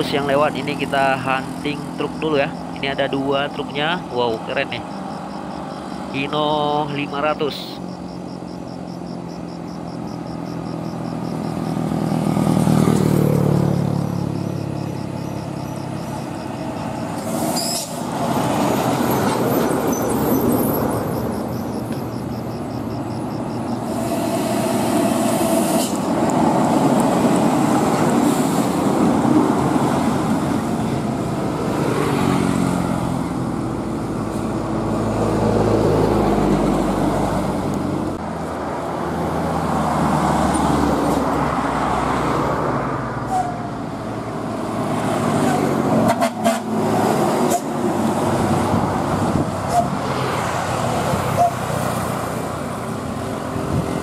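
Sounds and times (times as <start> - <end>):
truck diesel engine rumble: 0.0 - 31.7
motorcycles passing: 0.0 - 54.0.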